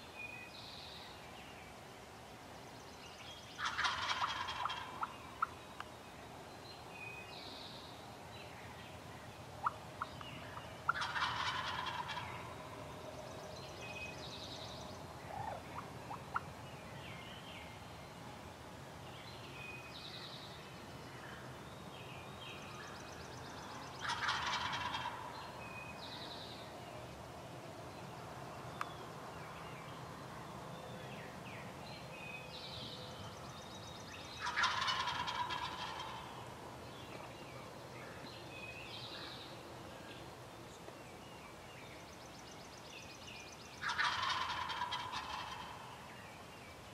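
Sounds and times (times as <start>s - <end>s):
turkey gobbling: 3.6s - 5.5s, 10.9s - 12.5s, 15.3s - 16.4s, 24.0s - 25.3s, 34.4s - 36.4s, 43.8s - 45.8s.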